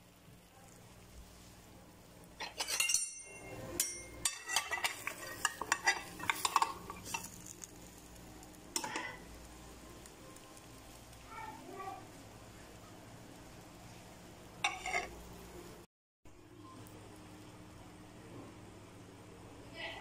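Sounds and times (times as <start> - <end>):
kitchenware clinking on glass dish: 2.4 - 7.3.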